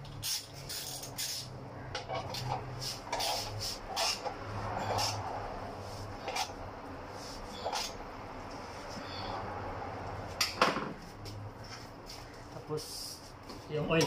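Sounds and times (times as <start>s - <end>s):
hand tool clicking and scraping: 0.0s - 5.2s.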